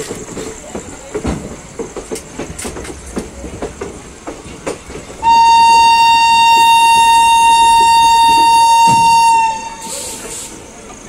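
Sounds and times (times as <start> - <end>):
train wheels clicking over rail joints: 0.0 - 11.0
locomotive horn blast: 5.2 - 10.3.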